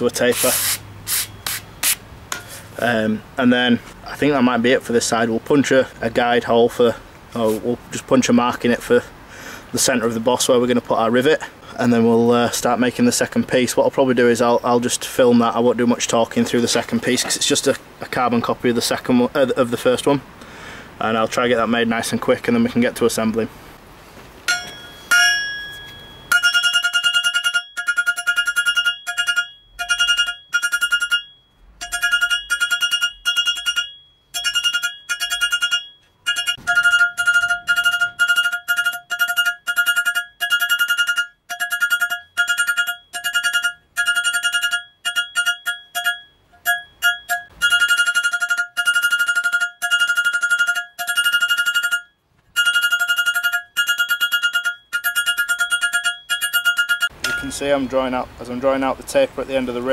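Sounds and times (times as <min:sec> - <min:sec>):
hammer ringing on metal anvil: 0:24.5 - 0:57.8.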